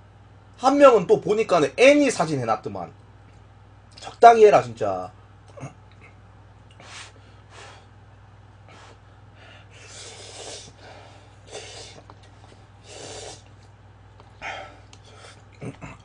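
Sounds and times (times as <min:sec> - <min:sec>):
low steady hum: 0:00.0 - 0:16.0
person slurping noodles: 0:09.8 - 0:10.8, 0:11.5 - 0:12.1, 0:12.8 - 0:13.5.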